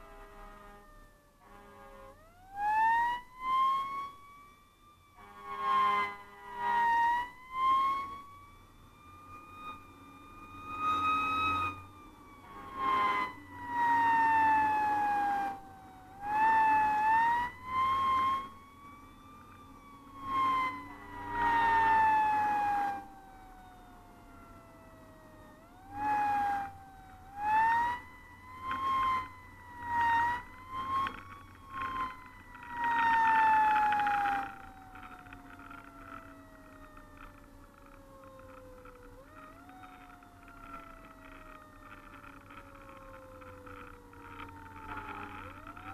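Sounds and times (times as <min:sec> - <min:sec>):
air horn blasts: 0:00.0 - 0:02.3, 0:05.2 - 0:06.7
fire engine siren wailing: 0:00.0 - 0:45.9.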